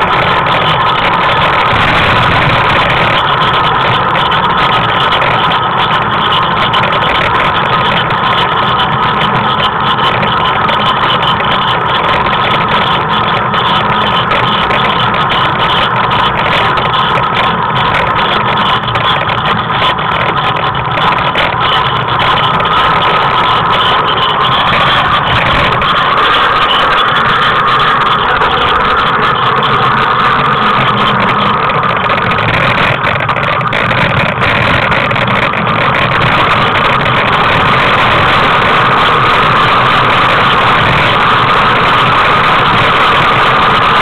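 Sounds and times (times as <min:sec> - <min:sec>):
tricycle rolling on asphalt: 0:00.0 - 0:44.0.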